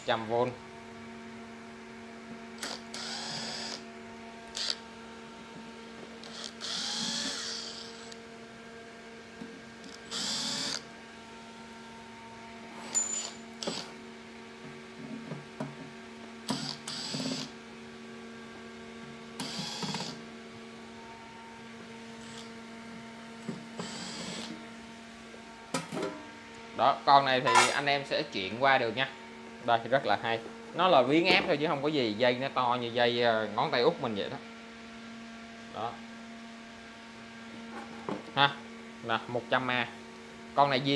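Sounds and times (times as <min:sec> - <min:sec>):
steady hum: 0:00.0 - 0:40.9
tool and handling noise: 0:27.5 - 0:27.8.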